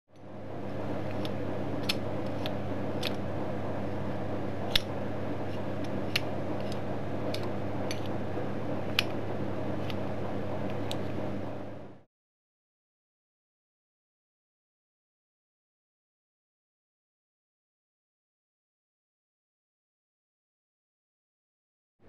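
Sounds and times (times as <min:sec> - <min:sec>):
steady low hum: 0:00.1 - 0:12.1.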